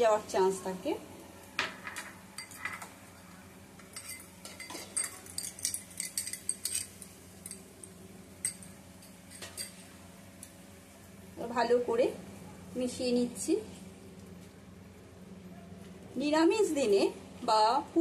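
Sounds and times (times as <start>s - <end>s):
spices frying in oil: 0.0s - 12.2s.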